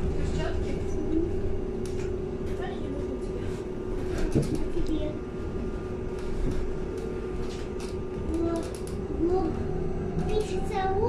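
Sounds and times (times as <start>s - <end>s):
electric bus hum: 0.0s - 11.0s
low road rumble: 0.0s - 11.0s
body rattles and clicks: 4.0s - 5.1s.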